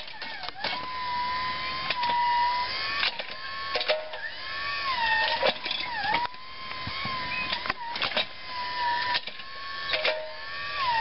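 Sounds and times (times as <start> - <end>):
electric motor and hydraulic whine: 0.0 - 11.0
clicks and clunks from digger arm: 3.0 - 4.3, 5.2 - 6.4, 7.4 - 8.3, 9.0 - 10.4.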